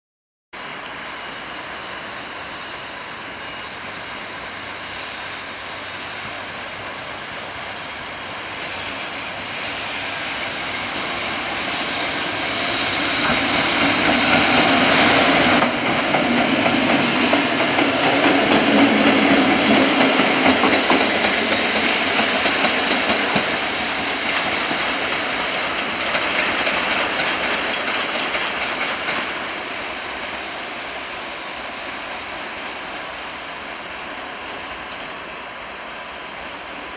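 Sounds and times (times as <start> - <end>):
electric locomotive passing: 0.6 - 36.9
wheels clacking over rail joints: 12.0 - 29.4.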